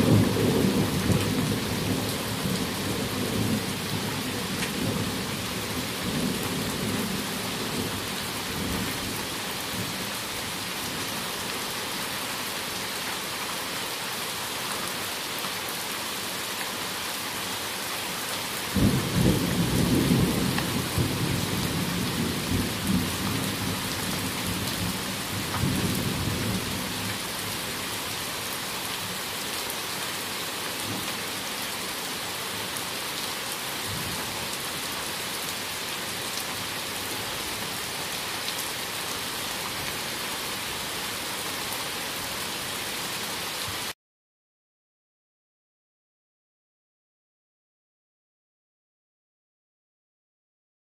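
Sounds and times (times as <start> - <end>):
heavy rain falling: 0.0 - 44.0
low thunder rumbling: 18.8 - 25.0.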